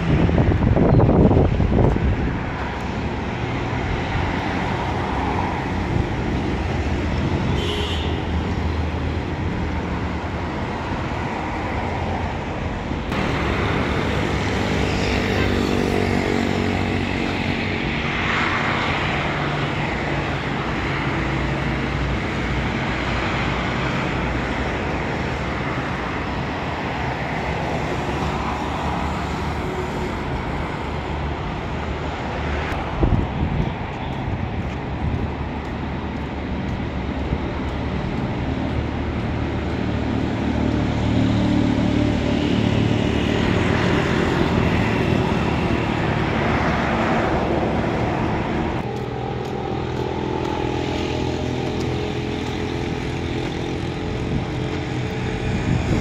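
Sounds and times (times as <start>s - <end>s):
road traffic rush: 0.0s - 56.0s.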